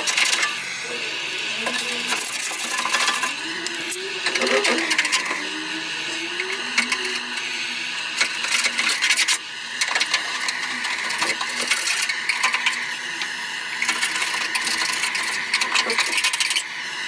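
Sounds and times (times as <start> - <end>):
blowtorch hissing: 0.0 - 17.0
scraper rasping on metal: 1.5 - 7.5.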